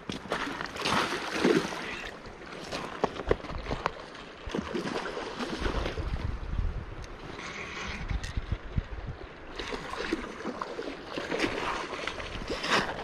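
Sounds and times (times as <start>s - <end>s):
wind rumble on microphone: 5.5s - 10.2s.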